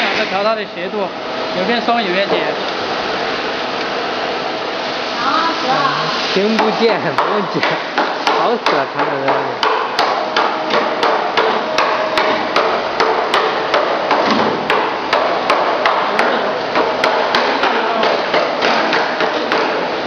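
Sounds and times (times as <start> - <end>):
machine running noise: 0.0 - 20.0
machinery knocking: 6.5 - 20.0.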